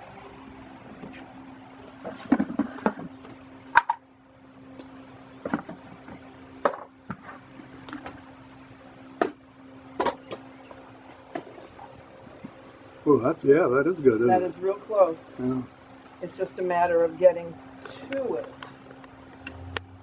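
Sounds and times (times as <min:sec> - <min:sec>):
steady low hum: 0:00.0 - 0:20.0
bucket being moved: 0:02.0 - 0:03.2.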